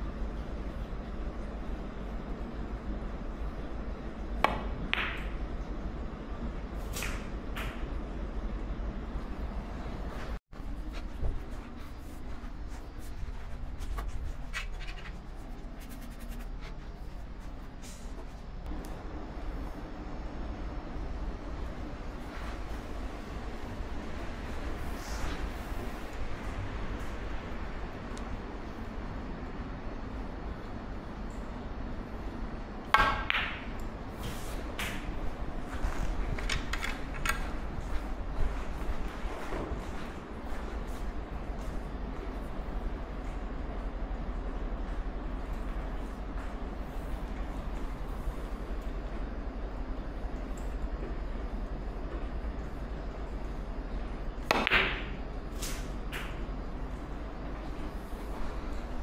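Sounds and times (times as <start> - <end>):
low hum: 0.0 - 59.0
snooker ball knock: 54.5 - 55.2.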